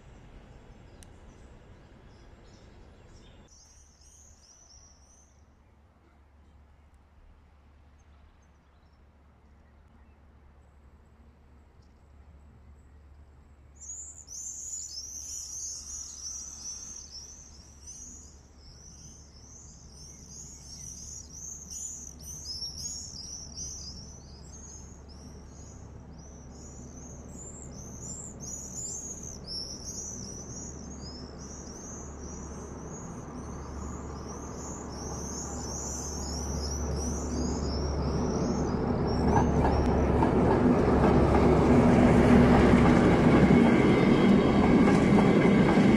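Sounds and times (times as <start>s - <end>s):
diesel locomotive engine drone: 0.0s - 45.9s
small birds chirping: 13.8s - 40.1s
train rail noise: 22.4s - 45.9s.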